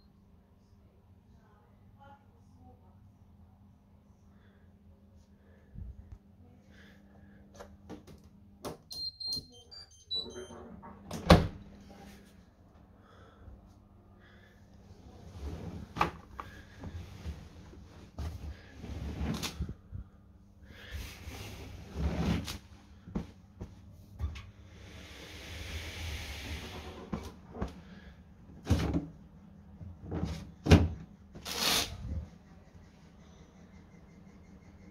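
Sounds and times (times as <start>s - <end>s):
electronic beep tune: 8.9s - 10.6s.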